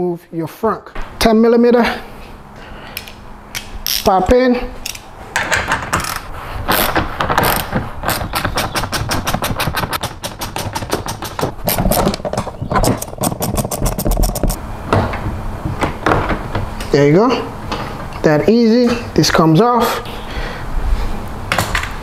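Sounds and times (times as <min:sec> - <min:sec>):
ratchet wrench clicking: 0:03.0 - 0:04.1.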